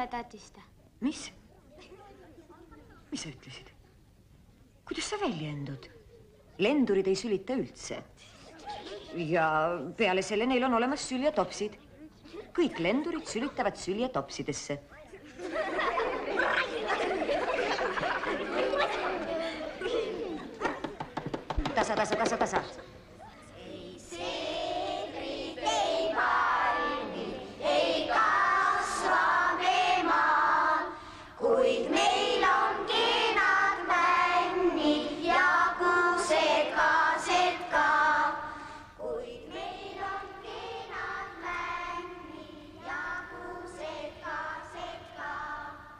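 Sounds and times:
children singing: 23.6s - 45.8s.

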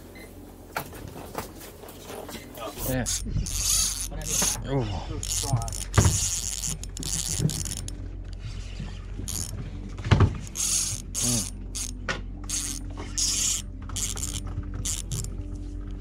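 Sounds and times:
fishing reel drag buzzing: 2.8s - 8.0s, 8.6s - 9.6s, 10.4s - 15.3s
spinning reel cranking: 2.8s - 8.0s, 9.2s - 9.6s, 10.4s - 15.3s.

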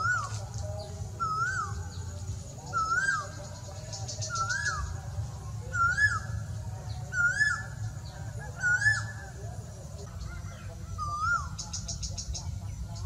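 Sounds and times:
bird whistled call: 0.0s - 0.4s, 1.2s - 2.1s, 2.7s - 5.0s, 5.7s - 6.4s, 7.1s - 9.4s, 10.3s - 12.4s.

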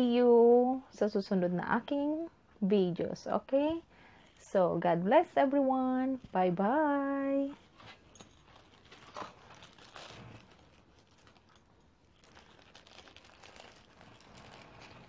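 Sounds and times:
clothing rustling on microphone: 7.0s - 15.0s.

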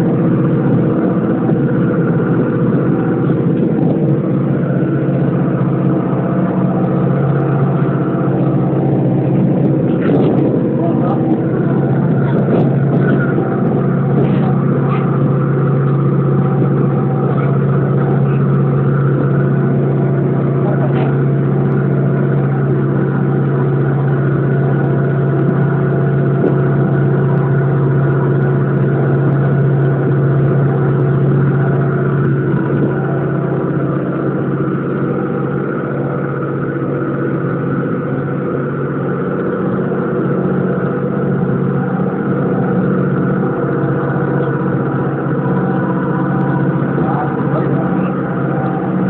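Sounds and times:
boat engine humming: 0.0s - 49.0s.

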